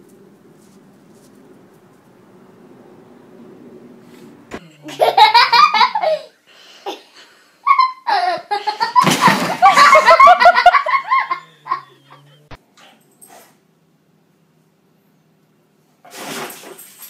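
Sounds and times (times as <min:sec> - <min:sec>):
people laughing hard: 0:04.8 - 0:06.2, 0:07.7 - 0:12.4.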